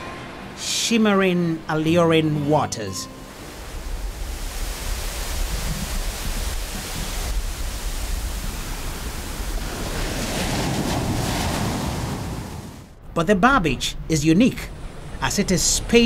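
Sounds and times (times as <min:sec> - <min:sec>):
ocean waves breaking: 0:03.2 - 0:13.0.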